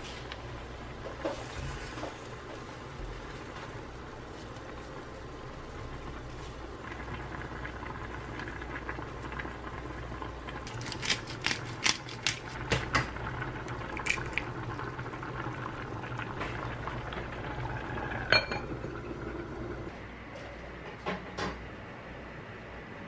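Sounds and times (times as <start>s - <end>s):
stew bubbling in a pot: 0.0s - 19.9s
glass lid clinking on pot: 18.3s - 18.7s.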